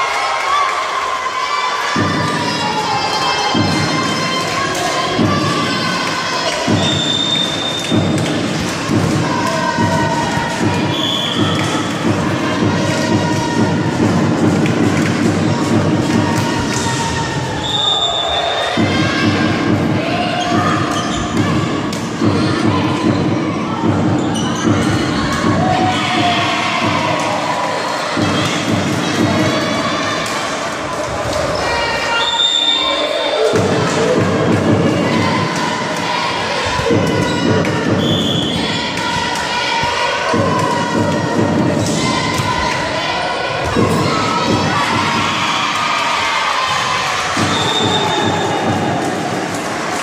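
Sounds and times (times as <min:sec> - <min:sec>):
crowd din: 0:00.0 - 0:50.0
spectators shouting: 0:00.0 - 0:50.0
short high whistle: 0:32.1 - 0:33.1.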